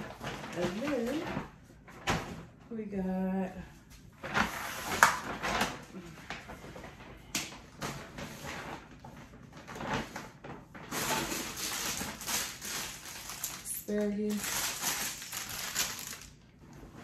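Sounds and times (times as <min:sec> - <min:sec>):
plastic packaging rustling: 0:00.0 - 0:02.3, 0:04.2 - 0:17.0
sharp plastic crackle: 0:00.0 - 0:02.3, 0:04.2 - 0:17.0.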